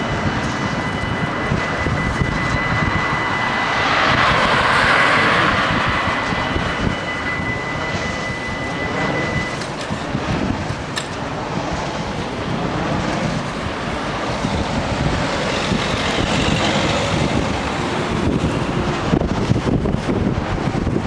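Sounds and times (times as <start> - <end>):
car and van engines: 0.0 - 21.0
wind rumbling on microphone: 0.0 - 21.0.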